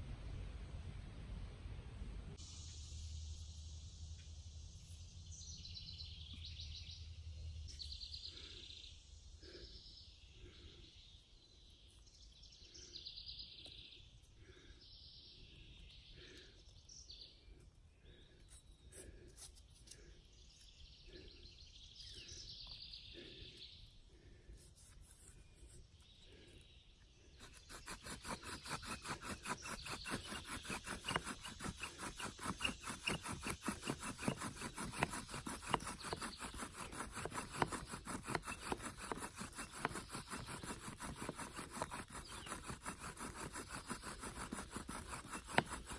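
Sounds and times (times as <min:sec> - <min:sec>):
bow drill rubbing and grinding: 0:27.4 - 0:45.9.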